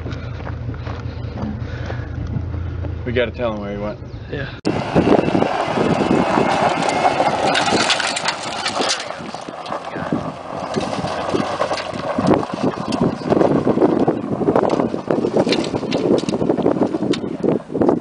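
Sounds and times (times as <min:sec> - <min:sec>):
tyres on loose dirt: 0:00.0 - 0:03.8, 0:04.6 - 0:18.0
truck engine running: 0:00.0 - 0:18.0.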